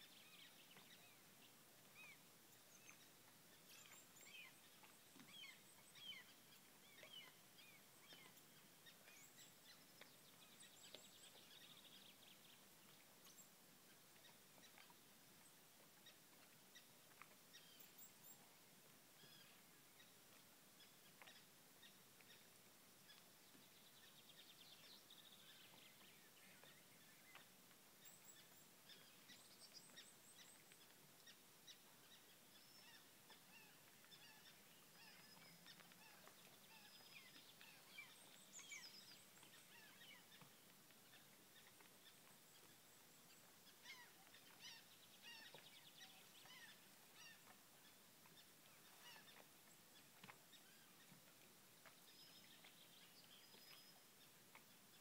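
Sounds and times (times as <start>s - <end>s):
background hiss: 0.0s - 55.0s
birds chirping: 2.0s - 12.6s, 23.5s - 51.2s.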